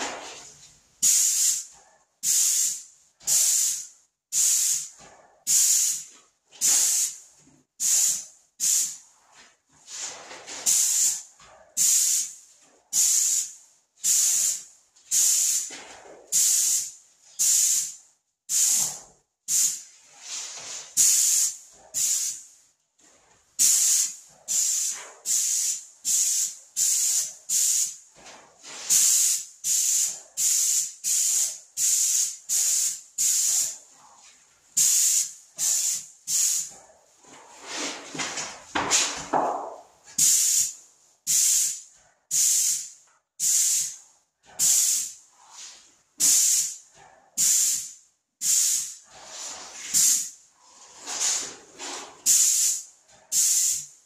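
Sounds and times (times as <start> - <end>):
paint spray gun hissing: 1.0 - 3.8, 4.4 - 4.9, 7.8 - 9.0, 11.8 - 12.3, 13.0 - 15.7, 16.3 - 19.8, 21.0 - 22.4, 23.6 - 28.0, 28.9 - 33.8, 34.8 - 36.7, 40.2 - 40.7, 41.3 - 44.0, 44.6 - 45.2, 46.2 - 46.8, 47.4 - 49.0, 49.9 - 50.3, 52.2 - 53.9.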